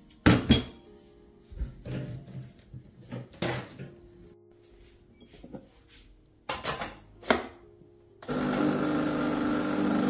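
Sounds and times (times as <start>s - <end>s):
soft background music: 0.0s - 9.8s
kitchenware knocking and clinking: 0.2s - 0.8s, 1.6s - 4.0s, 6.5s - 7.6s.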